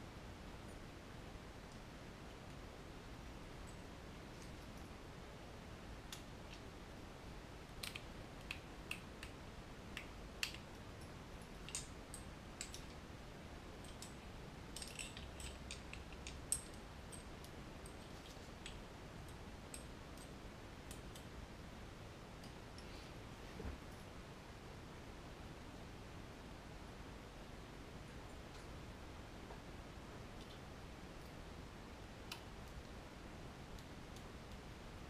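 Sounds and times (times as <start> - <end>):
small plastic and metal parts clicking: 13.8 - 17.2.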